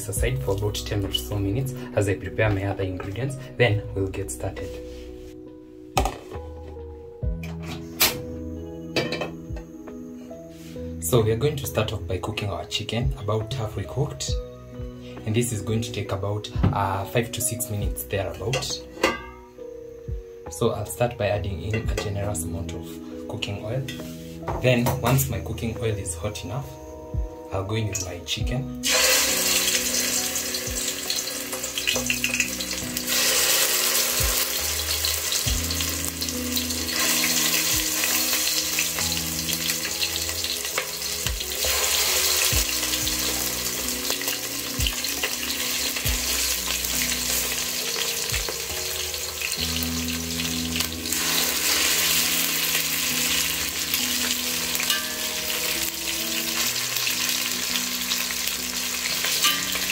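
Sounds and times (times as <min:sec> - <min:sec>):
chicken sizzling in hot oil: 0:28.8 - 0:59.9.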